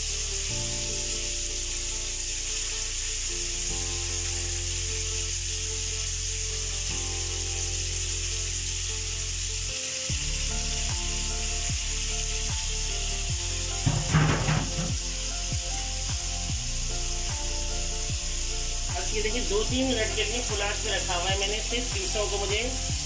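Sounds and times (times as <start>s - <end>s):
fish sizzling in oil: 0.0s - 23.0s
pans clattering and scraping: 13.8s - 15.0s.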